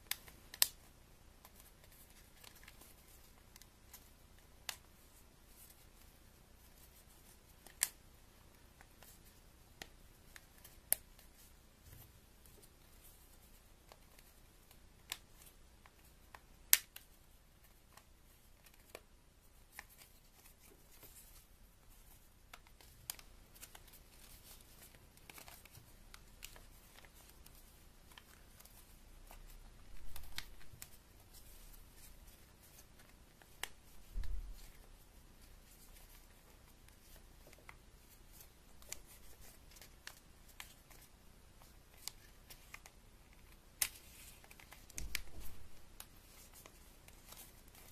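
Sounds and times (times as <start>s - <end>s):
paper rustling and crinkling: 19.7s - 47.9s.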